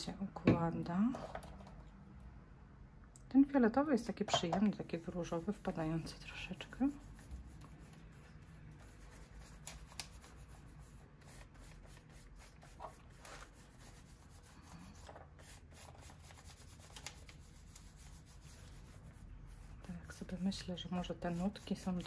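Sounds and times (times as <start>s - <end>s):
brush rubbing on paper: 4.8s - 22.0s.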